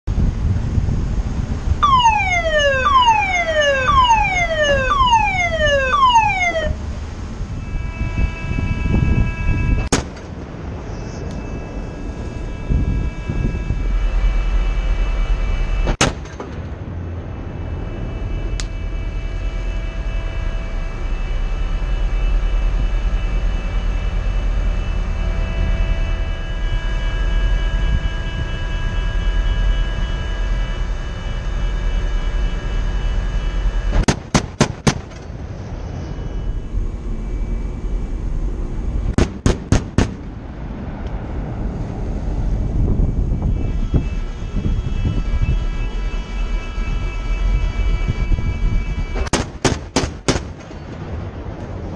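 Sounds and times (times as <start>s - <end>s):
low rumble: 0.0s - 34.0s, 34.9s - 49.2s
machinery whine: 0.2s - 34.1s, 34.8s - 49.3s
warning alarm falling tone: 1.8s - 6.9s, 17.6s - 34.0s, 35.2s - 39.2s
naval gun firing: 16.0s - 16.6s, 34.0s - 35.2s, 39.2s - 40.3s, 49.3s - 50.7s.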